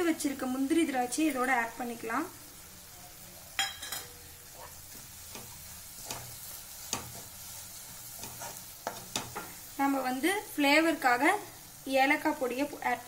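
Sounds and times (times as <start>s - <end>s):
faint sizzle: 0.0s - 13.0s
spatula scraping a pan: 3.9s - 9.6s.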